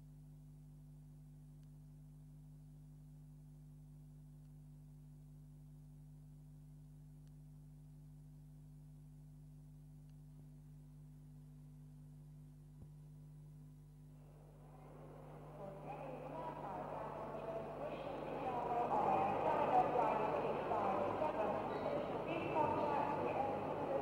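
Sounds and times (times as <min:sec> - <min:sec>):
low hum: 0:12.1 - 0:24.0.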